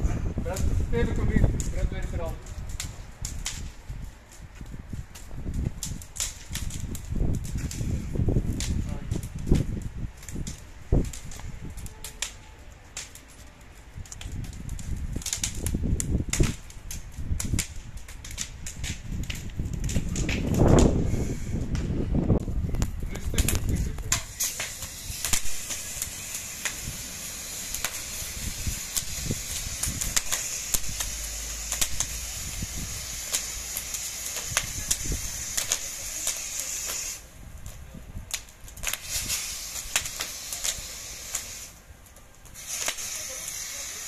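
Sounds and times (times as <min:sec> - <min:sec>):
wood fire crackling and popping: 0:00.0 - 0:44.0
hose spraying water: 0:23.4 - 0:37.3, 0:38.8 - 0:41.8, 0:42.5 - 0:44.0.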